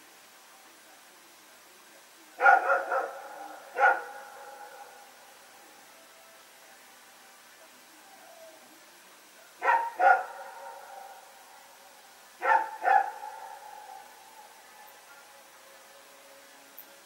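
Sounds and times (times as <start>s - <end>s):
dog barking: 2.4s - 4.9s, 9.6s - 11.2s, 12.4s - 14.0s.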